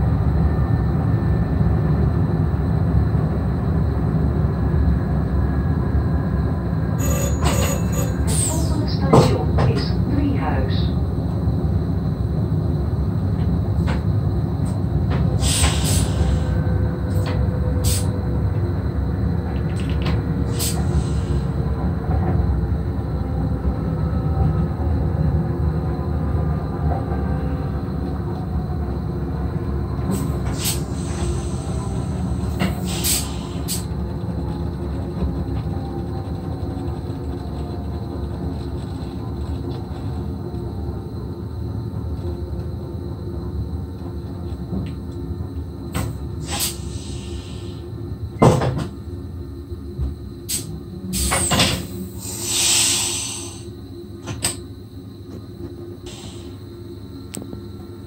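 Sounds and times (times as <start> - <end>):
electric train rumbling: 0.0 - 58.0
air hiss bursts: 46.5 - 47.8, 50.5 - 53.7.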